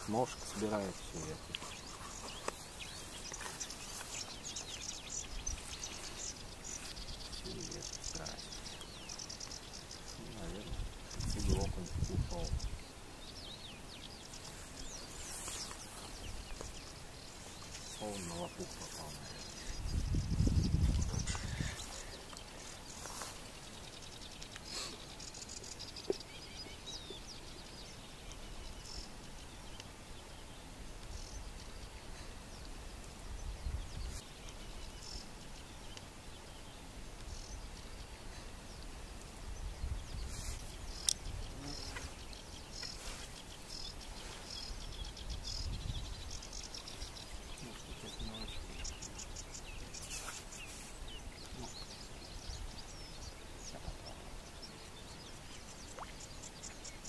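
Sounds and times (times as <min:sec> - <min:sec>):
small birds chirping: 0:00.0 - 0:57.0
wind rumble on microphone: 0:10.2 - 0:12.9, 0:19.3 - 0:22.0, 0:32.8 - 0:34.2, 0:39.1 - 0:42.4, 0:43.8 - 0:50.0.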